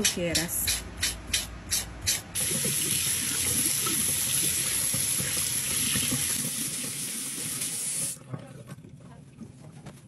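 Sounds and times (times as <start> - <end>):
faucet running over hands: 2.4 - 8.2.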